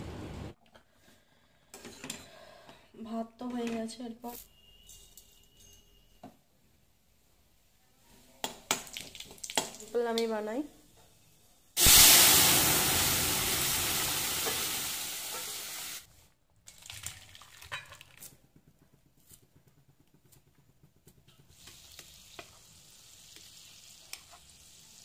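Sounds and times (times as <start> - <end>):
dal sizzling in hot oil: 11.8 - 16.1, 21.4 - 25.0.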